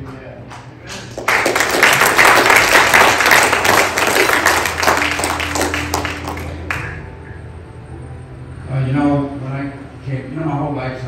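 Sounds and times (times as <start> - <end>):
crowd applauding: 0.9 - 7.2.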